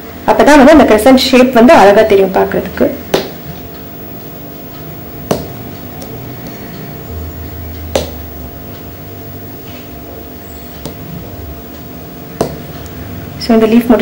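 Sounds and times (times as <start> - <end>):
low steady hum: 0.0 - 14.0
needle tapping through fabric: 3.0 - 6.9, 7.8 - 8.9, 10.7 - 11.1, 12.4 - 12.8.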